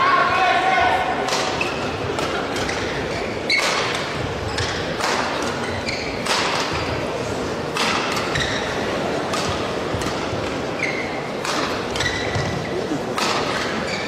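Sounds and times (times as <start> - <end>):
racket striking shuttlecock: 1.2 - 2.8, 3.5 - 5.6, 6.2 - 7.0, 7.7 - 8.4, 9.2 - 10.6, 11.4 - 13.8
shoe squeaks on court: 5.5 - 6.4, 10.8 - 12.8.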